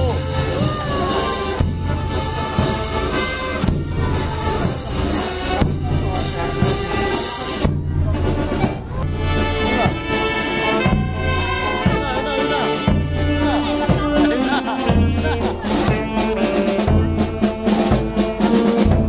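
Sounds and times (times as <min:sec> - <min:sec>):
brass band playing a march: 0:00.0 - 0:19.0
steady drum beats: 0:00.0 - 0:19.0.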